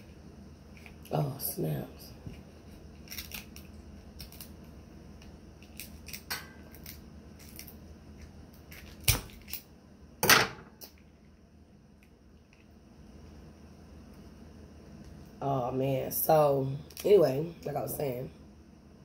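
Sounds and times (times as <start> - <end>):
scissors cutting crab shell: 3.0 - 4.5, 5.6 - 7.7
shell cracking: 3.0 - 7.8, 8.5 - 9.7.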